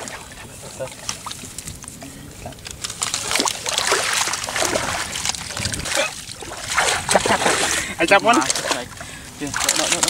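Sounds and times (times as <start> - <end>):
wet grass rustling and crackling: 0.0 - 10.0
water trickling: 2.9 - 10.0.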